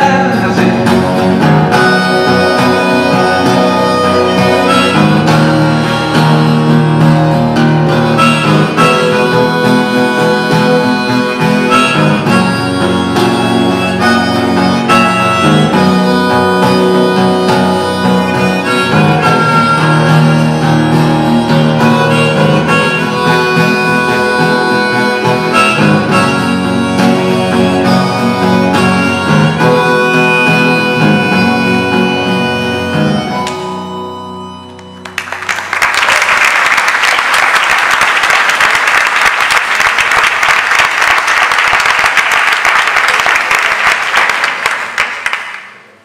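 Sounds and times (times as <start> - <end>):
acoustic guitar: 0.0 - 35.8
harmonica: 0.0 - 36.0
audience applause: 35.0 - 46.0.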